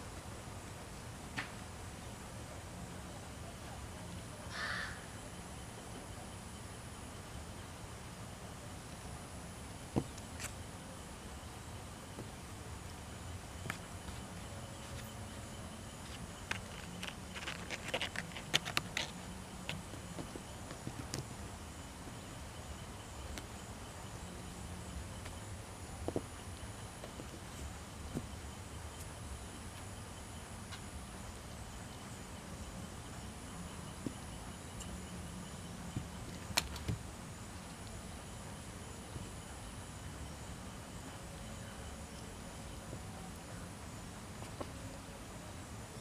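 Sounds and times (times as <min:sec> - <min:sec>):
background hiss and rumble: 0:00.0 - 0:46.0
low background hum: 0:00.0 - 0:46.0
paws scratching on mat and cardboard: 0:16.1 - 0:21.2.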